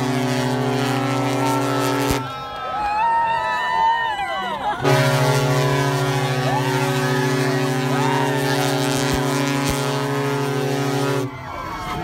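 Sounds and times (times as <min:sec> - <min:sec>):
ship's horn long blast: 0:00.0 - 0:02.4, 0:04.8 - 0:11.4
people cheering: 0:00.5 - 0:12.0.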